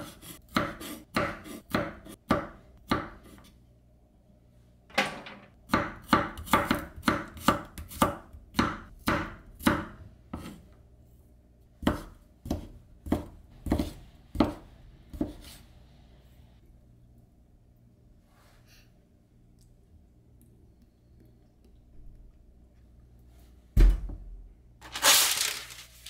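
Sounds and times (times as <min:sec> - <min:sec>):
knife chopping on cutting board: 0:00.0 - 0:03.4, 0:05.7 - 0:10.6, 0:11.8 - 0:15.6.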